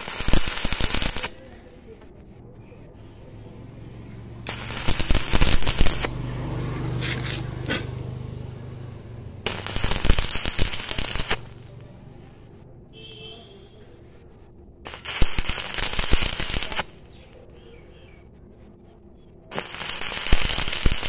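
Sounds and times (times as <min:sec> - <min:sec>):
welding arc crackling and spitting: 0:00.0 - 0:01.7, 0:04.4 - 0:08.3, 0:09.4 - 0:12.0, 0:14.9 - 0:17.4, 0:19.5 - 0:21.0.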